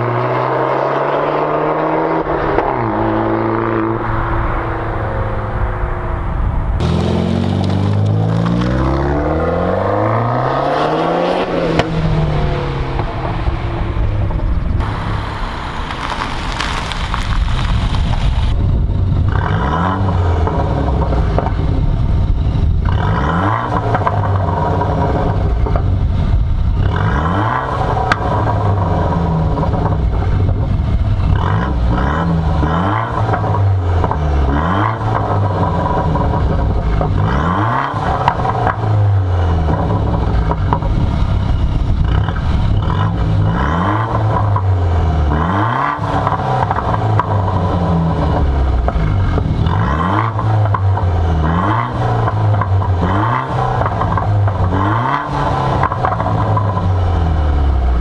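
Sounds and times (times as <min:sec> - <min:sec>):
car engine revving: 0:00.0 - 0:17.7, 0:18.8 - 0:58.0.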